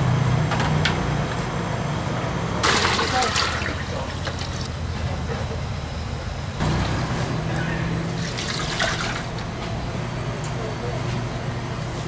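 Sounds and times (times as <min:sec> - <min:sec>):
water pouring into pot: 0:02.6 - 0:04.5, 0:08.2 - 0:09.4.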